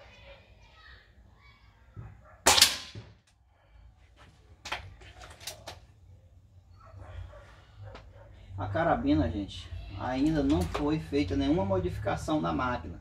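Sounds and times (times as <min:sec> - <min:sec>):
air rifle shot: 0:02.4 - 0:03.2.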